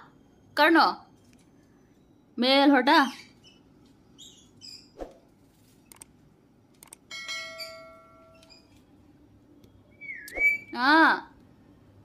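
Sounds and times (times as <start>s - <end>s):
parrots chirping: 3.0s - 5.0s, 7.4s - 8.8s, 9.9s - 10.7s
small clicks: 5.8s - 7.1s
metallic ringing: 7.1s - 8.7s.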